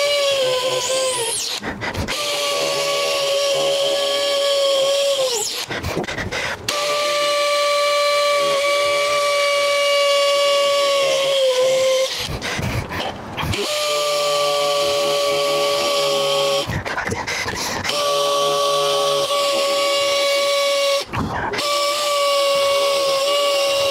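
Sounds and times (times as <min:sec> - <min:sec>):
hammer drill boring concrete: 0:00.0 - 0:23.9.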